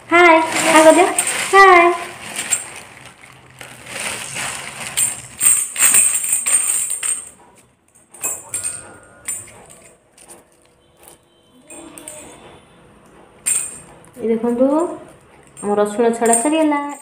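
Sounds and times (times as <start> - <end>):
baby rattle shaking: 0.4 - 7.3, 8.2 - 10.0.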